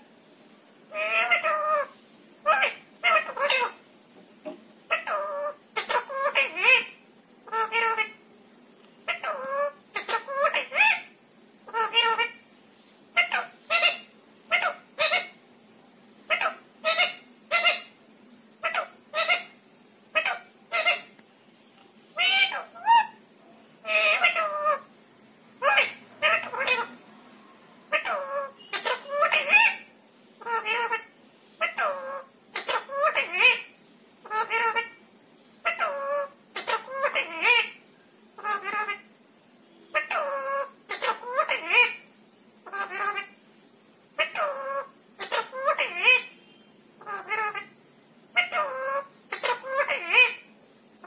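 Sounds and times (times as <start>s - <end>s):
parakeet talking: 0.9s - 3.8s, 4.4s - 8.2s, 9.0s - 12.4s, 13.1s - 15.4s, 16.3s - 18.0s, 18.6s - 21.2s, 22.1s - 23.2s, 23.8s - 24.9s, 25.6s - 35.0s, 35.6s - 39.1s, 39.8s - 43.4s, 44.1s - 50.6s.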